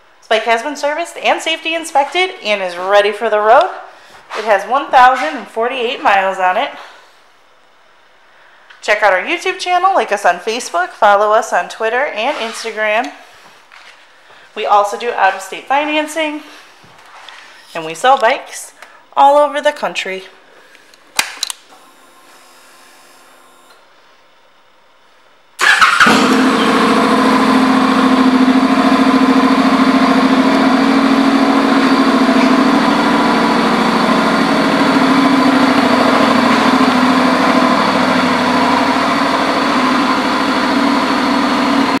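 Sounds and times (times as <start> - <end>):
motorcycle engine starting and idling: 25.6 - 42.0.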